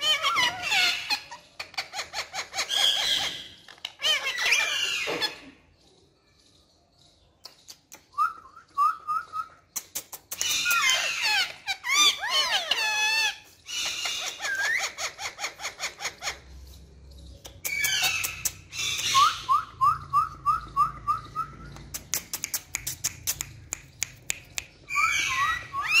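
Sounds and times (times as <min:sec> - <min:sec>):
sharp clicks: 0:09.7 - 0:11.0, 0:17.4 - 0:19.2, 0:21.6 - 0:24.9
parakeet chirps: 0:17.4 - 0:26.0
parakeet squawks and whistles: 0:17.6 - 0:21.8, 0:24.8 - 0:26.0.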